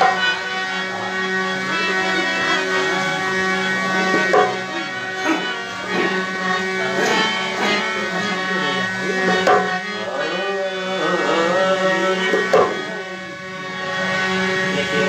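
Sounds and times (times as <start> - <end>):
dholak strokes: 0.0 - 15.0
harmonium playing: 0.0 - 15.0
man singing: 8.7 - 13.1.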